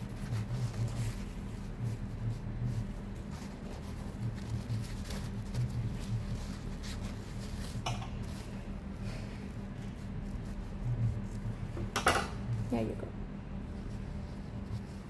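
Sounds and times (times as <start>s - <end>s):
paper rustle: 0.0s - 11.8s
steady low hum: 0.0s - 15.0s.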